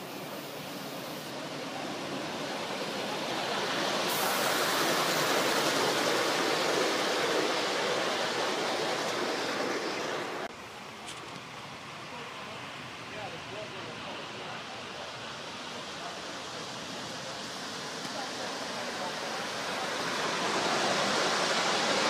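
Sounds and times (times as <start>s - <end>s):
wheels rolling on track: 0.0s - 11.5s, 16.0s - 22.0s
model steam locomotive rushing: 0.0s - 22.0s.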